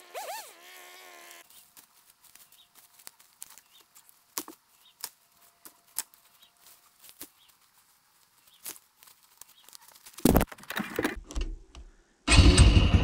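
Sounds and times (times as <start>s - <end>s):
footsteps crunching dry leaves: 1.4s - 10.4s.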